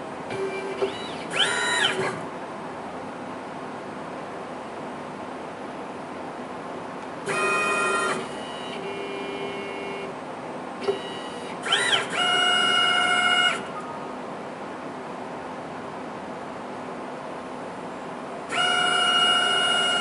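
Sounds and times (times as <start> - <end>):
motors whining: 0.3 - 2.3, 7.2 - 10.1, 10.8 - 13.9, 18.5 - 20.0.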